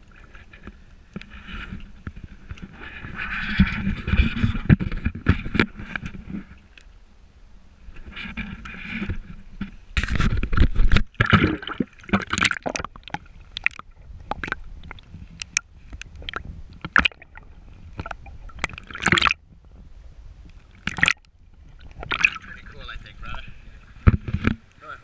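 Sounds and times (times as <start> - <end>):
water splashing and gurgling: 8.0 - 24.7
muffled underwater bubbling: 11.2 - 19.4, 20.8 - 24.3.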